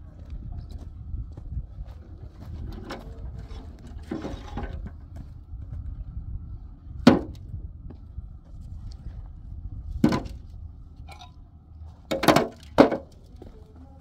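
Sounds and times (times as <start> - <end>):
steady low rumble: 0.0 - 14.0
bricks clunking into metal wheelbarrow: 2.6 - 5.1, 7.0 - 7.4, 10.0 - 10.5, 11.1 - 11.4, 12.0 - 13.5.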